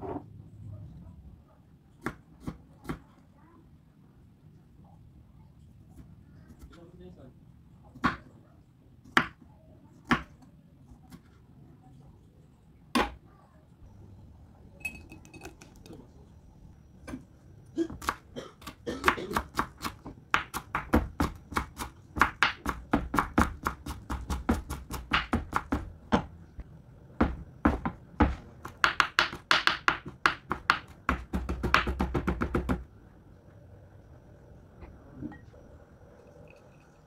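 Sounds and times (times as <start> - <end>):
knife chopping on wooden board: 19.1 - 26.3.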